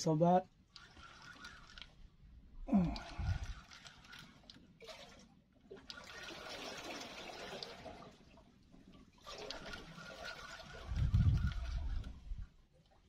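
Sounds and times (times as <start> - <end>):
fishing reel whirring: 0.6 - 7.7, 9.2 - 12.5.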